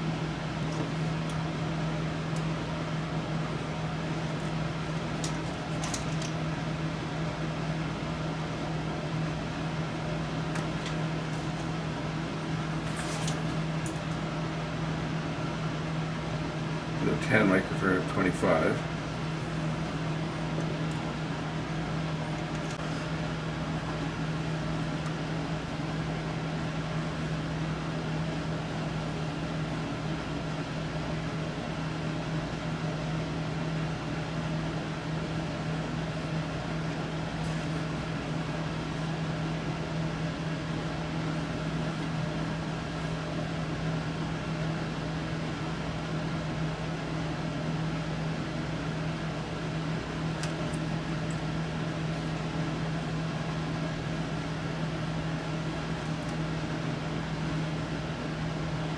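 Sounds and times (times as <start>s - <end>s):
mechanical hum: 0.0s - 58.9s.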